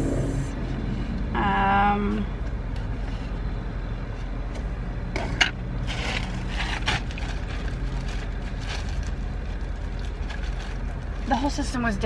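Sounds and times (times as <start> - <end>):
steady low hum: 0.0 - 12.0
plastic bag crinkling: 5.8 - 11.3.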